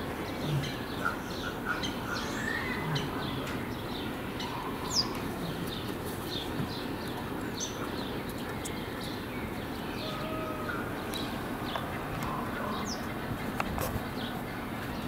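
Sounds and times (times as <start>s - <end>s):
outdoor background hum: 0.0s - 15.0s
small birds chirping: 0.0s - 15.0s.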